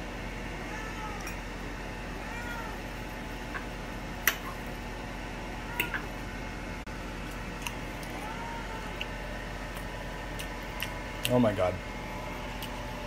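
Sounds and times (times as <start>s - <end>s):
cat meowing: 0.7s - 1.3s, 2.2s - 2.8s, 5.5s - 6.1s, 8.0s - 9.1s.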